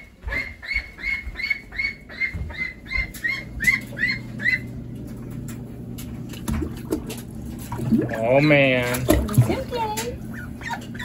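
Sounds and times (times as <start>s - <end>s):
duckling peeping: 0.0s - 4.8s, 10.2s - 11.0s
low steady hum: 0.0s - 11.0s.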